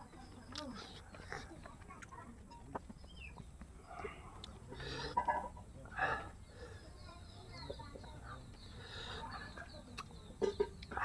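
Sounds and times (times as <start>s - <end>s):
chickens clucking: 0.0s - 11.0s
person eating by hand: 0.4s - 5.3s.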